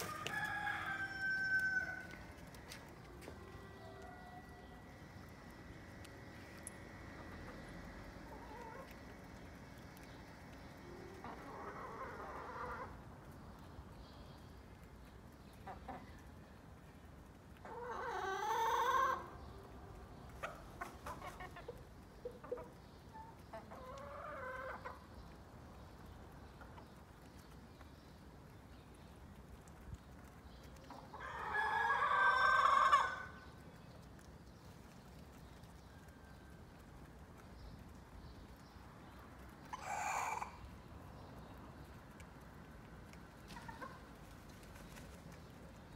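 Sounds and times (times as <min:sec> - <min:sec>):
rooster crowing: 0:00.0 - 0:02.2
chickens calling: 0:00.0 - 0:13.1, 0:17.6 - 0:25.4, 0:29.7 - 0:34.3, 0:39.4 - 0:41.9, 0:43.1 - 0:45.9.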